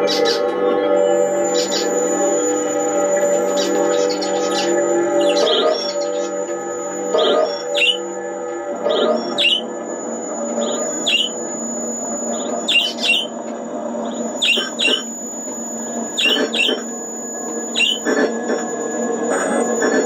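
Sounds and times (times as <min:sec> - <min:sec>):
electronic bird-like chirps: 0:00.0 - 0:20.0
steady electronic drone: 0:00.0 - 0:20.0
thin high whistling tone: 0:00.2 - 0:08.3, 0:08.9 - 0:13.4, 0:14.0 - 0:20.0.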